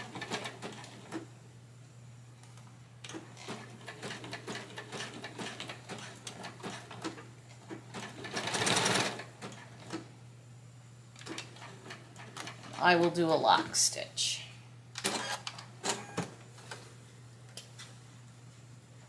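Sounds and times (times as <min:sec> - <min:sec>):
sewing machine stitching: 0:07.9 - 0:10.0.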